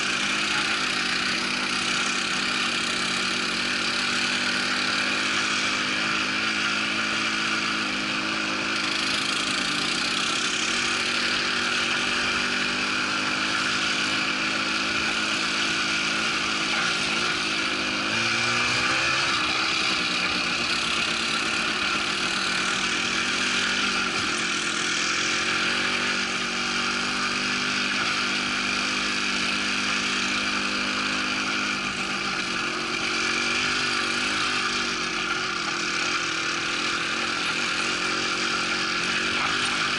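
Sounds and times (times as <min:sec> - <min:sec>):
quad bike engine running: 0:00.0 - 0:39.9
tyres on rough track: 0:00.0 - 0:39.9.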